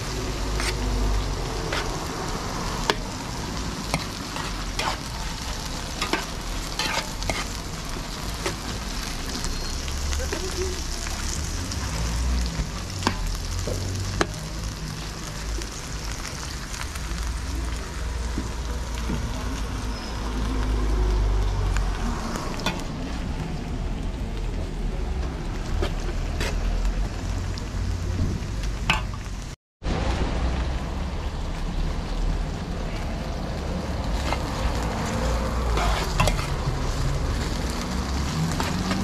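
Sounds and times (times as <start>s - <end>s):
metal spoon stirring food: 0.0s - 15.7s, 34.1s - 39.0s
food sizzling in a pan: 0.0s - 23.5s, 30.8s - 39.0s.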